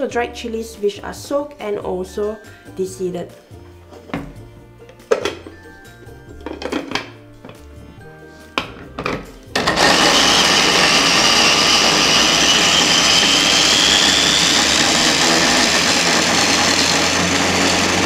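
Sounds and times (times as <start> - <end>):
food chopper motor whining: 9.5 - 18.0.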